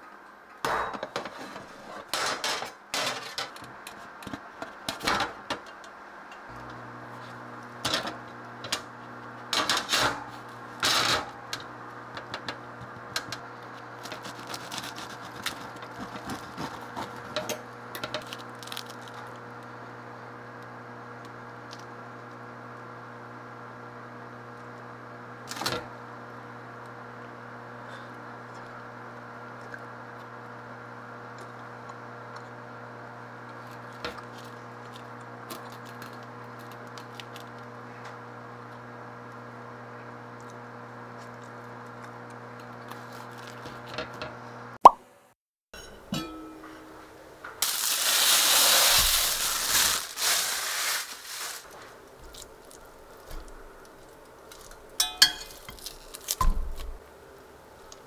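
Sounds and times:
knife sawing bread crust: 14.0s - 17.5s.

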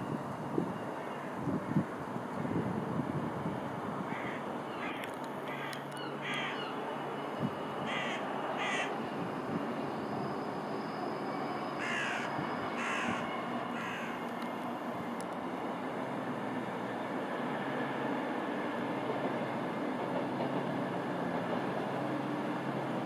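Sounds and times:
distant train rumble: 0.0s - 23.0s
bird harsh calls: 4.1s - 6.8s, 7.9s - 8.9s, 11.8s - 14.2s.

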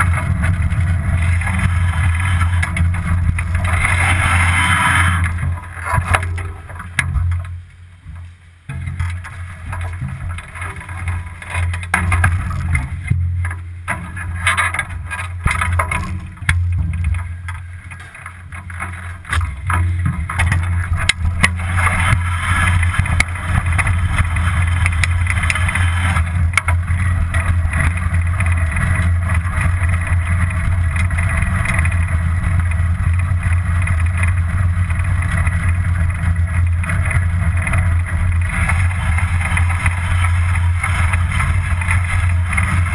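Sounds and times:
bicycle knocks and rattles: 0.0s - 42.9s
tyre and road noise: 0.0s - 42.9s
wind buffeting microphone: 19.2s - 42.9s.

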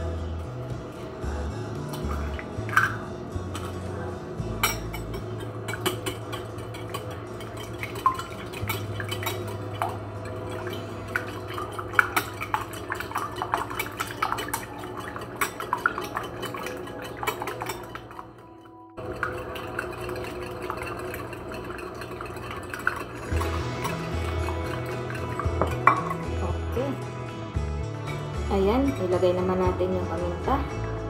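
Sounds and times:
fork beating eggs in glass bowl: 4.6s - 18.4s, 19.0s - 26.4s.

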